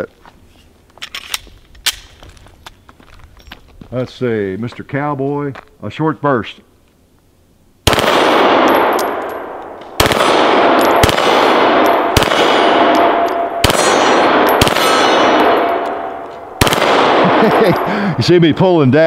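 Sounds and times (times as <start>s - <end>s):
pistol firing bursts: 7.8s - 17.8s
bullets ringing on steel targets: 8.2s - 17.9s.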